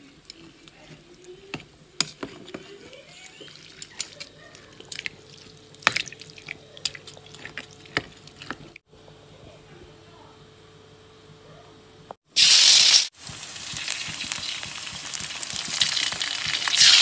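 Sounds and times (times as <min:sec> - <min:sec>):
soup sloshing and dripping: 0:03.4 - 0:08.8.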